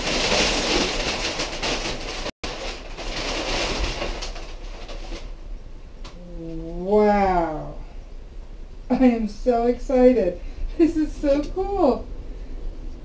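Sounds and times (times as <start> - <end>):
packing paper rustling and crackling: 0.0 - 5.6.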